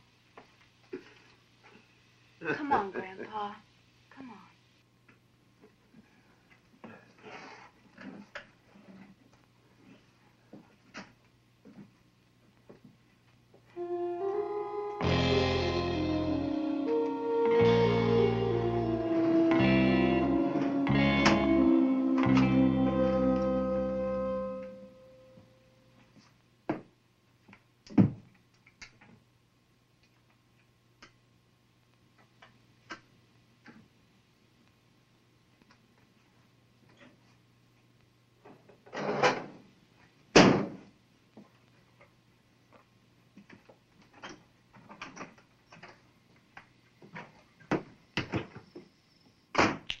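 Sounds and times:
faint steady hum: 0.0s - 49.6s
guitar-like held chord: 13.8s - 25.9s.

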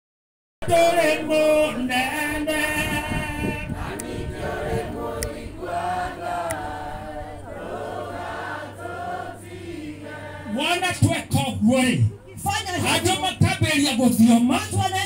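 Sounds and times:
crowd singing a hymn: 0.6s - 11.1s.

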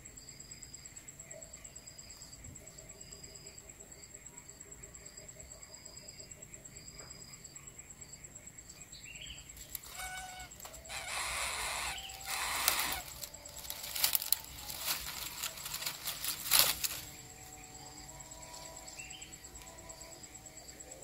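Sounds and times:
dry leaves rustling and crackling: 9.6s - 17.8s.

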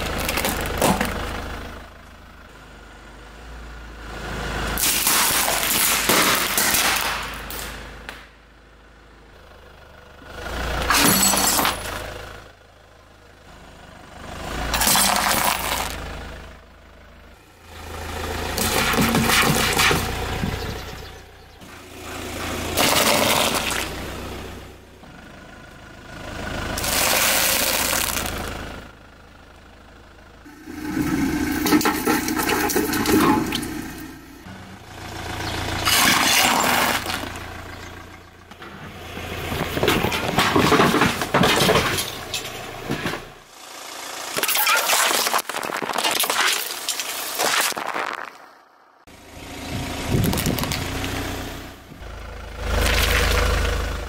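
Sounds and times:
tyre crushing cartons and bottles: 0.0s - 1.2s, 10.9s - 12.0s, 14.8s - 16.0s, 18.6s - 20.7s, 22.7s - 24.0s, 35.8s - 37.4s, 39.6s - 43.2s
car engine running: 0.0s - 54.0s.

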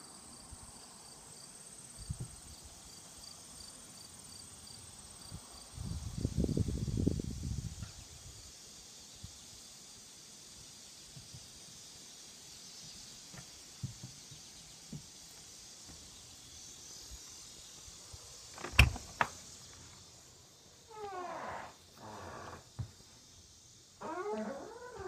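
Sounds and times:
insects chirring: 0.0s - 25.0s
door creaking open: 18.5s - 19.5s, 20.9s - 22.9s, 24.0s - 25.0s
door latch clicking: 18.6s - 19.4s.

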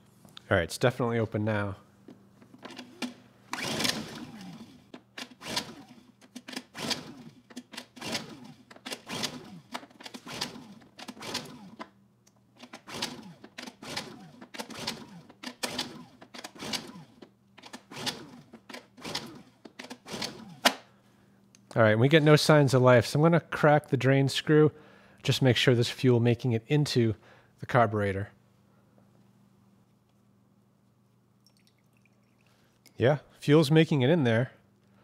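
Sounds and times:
generator recoil starter pulls: 2.4s - 12.0s, 12.6s - 20.8s
engine cranking without firing: 2.7s - 11.9s.

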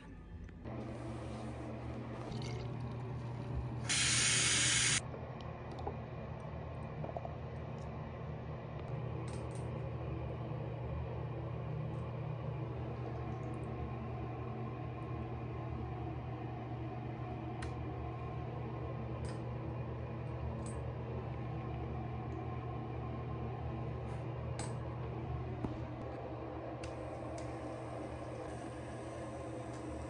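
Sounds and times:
steady low hum: 0.0s - 30.0s
spray hiss: 3.9s - 5.0s.

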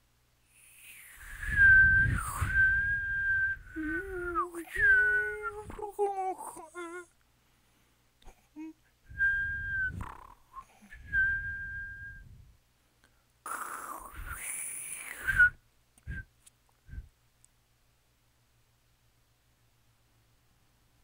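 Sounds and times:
hissy rushing breath: 0.4s - 4.1s, 13.5s - 15.6s
airy breath noise: 0.4s - 5.1s, 9.0s - 16.2s
person whistling: 0.8s - 5.9s, 9.1s - 12.4s, 14.1s - 16.3s.

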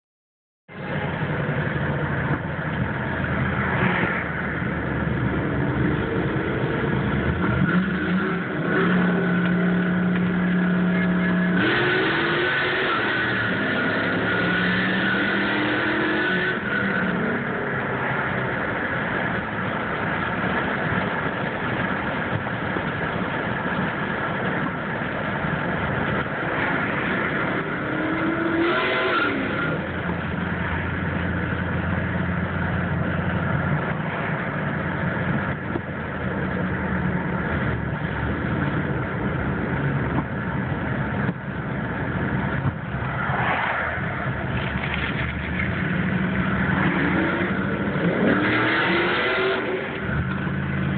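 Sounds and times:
road noise inside car: 0.7s - 50.9s
car engine revving: 0.9s - 50.9s.

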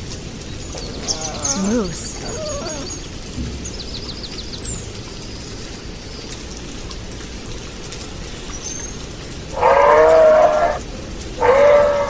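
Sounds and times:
small birds chirping: 0.4s - 6.4s.

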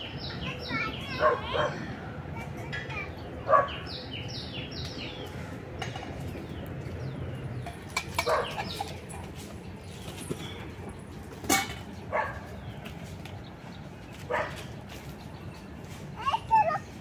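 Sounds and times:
dog barking: 1.2s - 1.8s, 3.5s - 3.8s, 8.2s - 8.6s, 12.1s - 12.4s, 14.3s - 14.6s.

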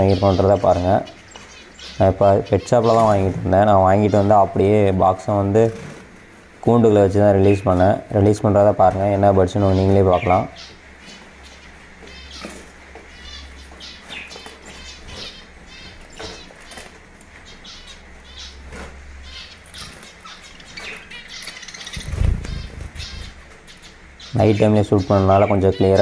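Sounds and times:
finches chirping: 0.0s - 26.0s
wings fluttering: 14.1s - 24.2s.

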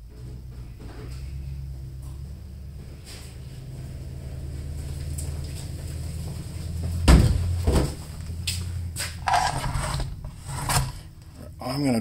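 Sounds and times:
low hum: 0.0s - 12.0s
loud thumps: 7.0s - 8.0s.

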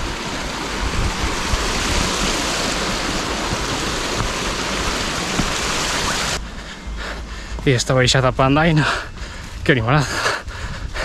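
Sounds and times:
stream rushing over rocks: 0.0s - 6.4s.

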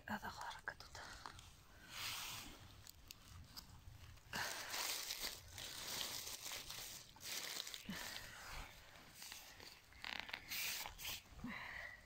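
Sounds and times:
dry leaves rustling and crackling: 4.4s - 7.9s.

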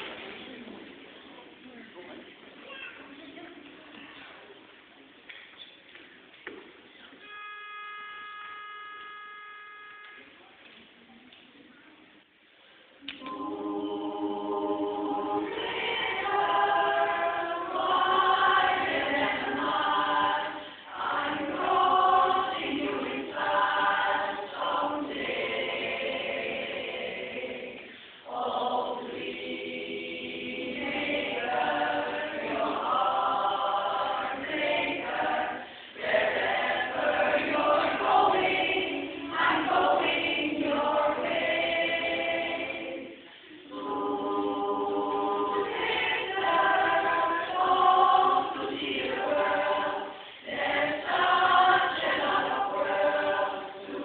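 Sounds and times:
women's chorus singing a cappella: 13.0s - 54.0s.

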